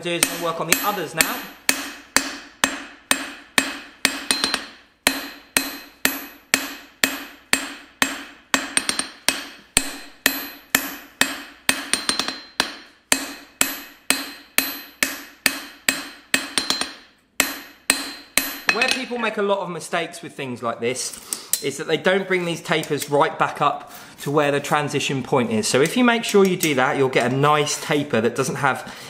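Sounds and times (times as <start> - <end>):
hammer striking steel on anvil: 0.0 - 19.2.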